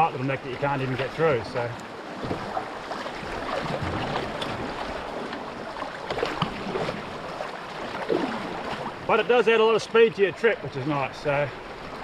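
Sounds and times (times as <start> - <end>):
light knocks on canoe: 1.8 - 5.4.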